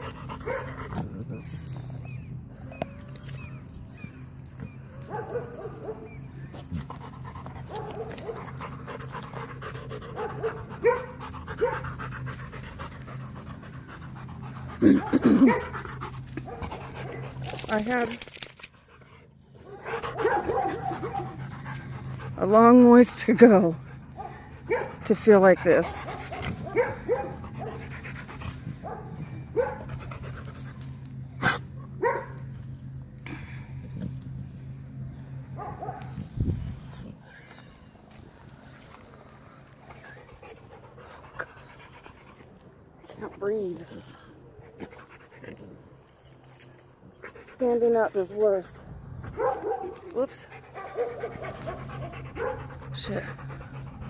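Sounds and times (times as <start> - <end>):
dog panting: 0.0 - 32.3, 39.7 - 45.8, 47.2 - 54.0
paws scratching dirt: 0.0 - 32.6, 47.2 - 54.0
dog whining: 14.6 - 15.8.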